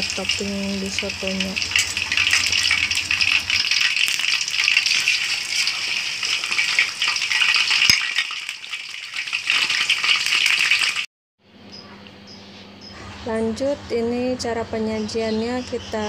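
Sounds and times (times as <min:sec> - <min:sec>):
chicken sizzling in hot oil: 0:00.0 - 0:11.1.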